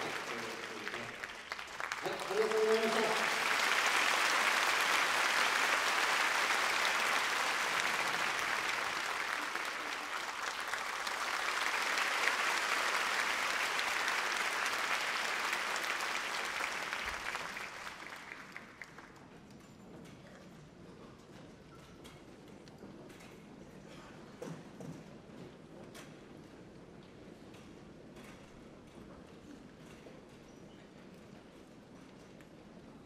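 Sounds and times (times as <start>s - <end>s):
audience applauding: 0.0s - 19.3s.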